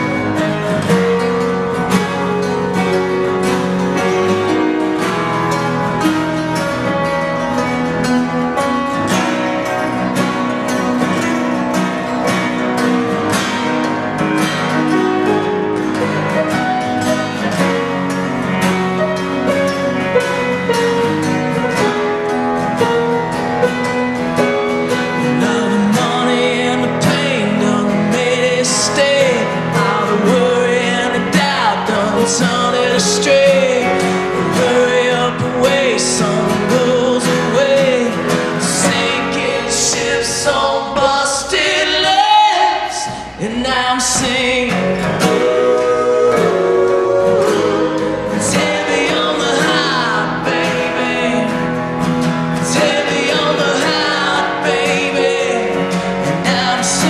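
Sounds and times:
digital piano: 0.0 - 57.0
strummed acoustic guitars: 0.0 - 57.0
man singing: 25.1 - 51.8, 52.6 - 57.0.

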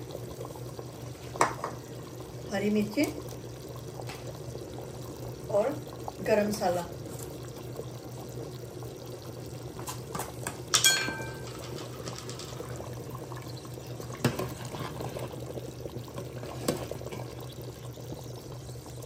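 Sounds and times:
curry bubbling in a pot: 0.0 - 19.0
utensil clinking against pot: 10.4 - 12.7.

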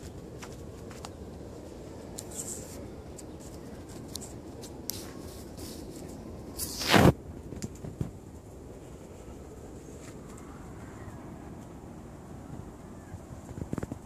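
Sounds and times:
rubbing on microphone: 5.0 - 7.2.

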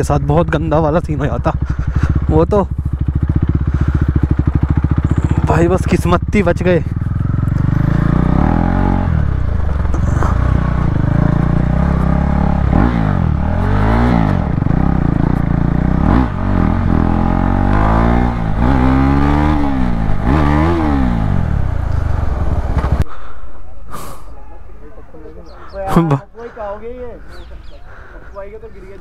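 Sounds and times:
motorcycle engine revving: 0.0 - 23.0.

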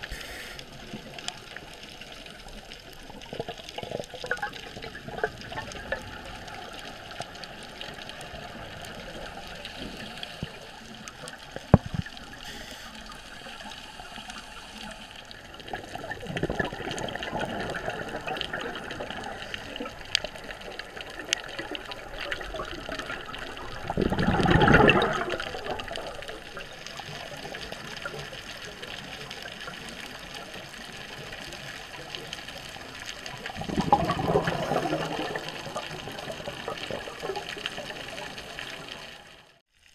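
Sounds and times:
steady underwater hiss: 0.0 - 39.6
diver's exhaled bubbles rushing: 15.5 - 26.8, 33.4 - 38.4.

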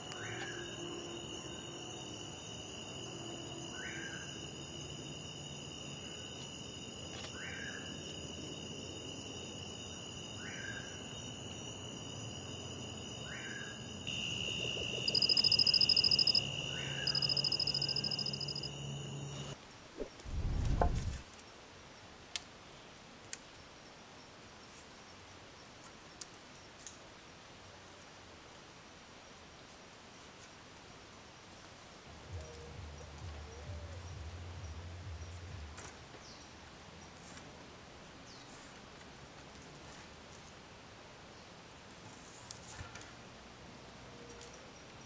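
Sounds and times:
insect trills: 0.0 - 19.6
frog rising call: 13.2 - 19.6
pulsing insect buzz: 14.0 - 19.6.

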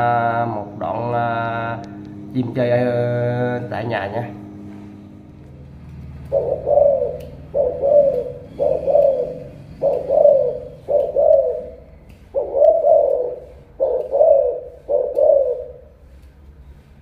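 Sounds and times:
dove cooing: 6.0 - 16.0.

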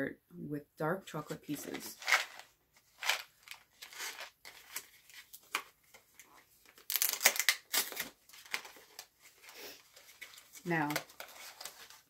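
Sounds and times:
plastic packaging being torn open: 6.6 - 9.1.

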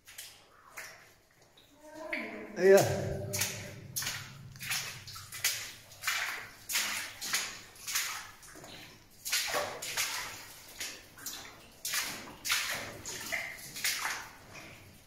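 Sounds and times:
footsteps splashing through water: 0.0 - 15.0.

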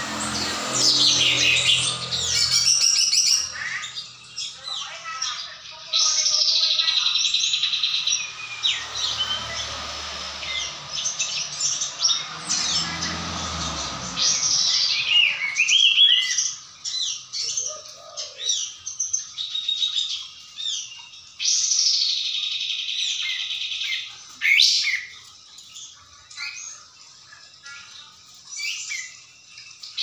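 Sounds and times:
bulbul singing whistled song: 14.2 - 30.0.

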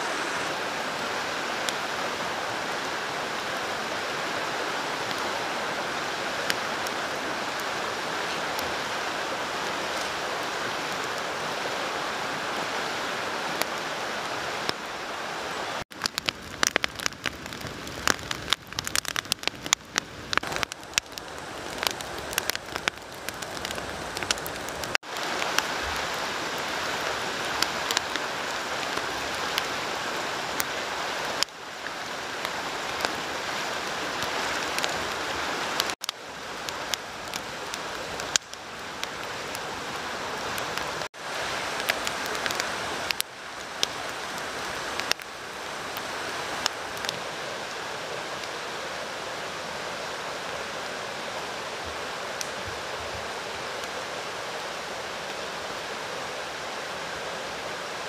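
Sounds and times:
stream rushing: 0.0 - 58.0
wood fire crackling and popping: 15.9 - 25.8, 27.5 - 28.2, 34.2 - 35.0, 35.8 - 39.6, 41.8 - 44.0, 45.0 - 45.3, 52.4 - 52.7.

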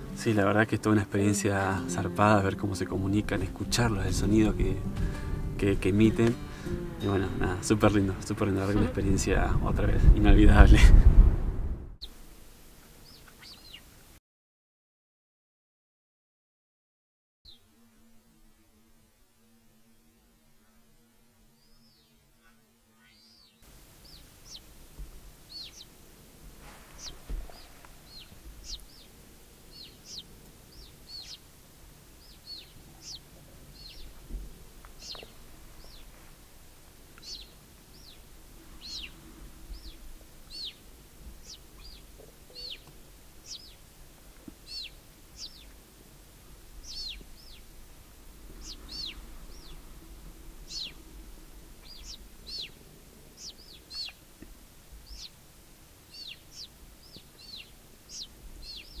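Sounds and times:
puma cubs chirping: 23.0 - 24.7, 25.5 - 25.9, 27.0 - 31.5, 32.2 - 34.2, 37.2 - 40.8, 41.4 - 43.8, 44.6 - 45.8, 46.8 - 47.7, 48.6 - 49.8, 53.4 - 54.2, 55.0 - 55.4, 56.1 - 59.0.

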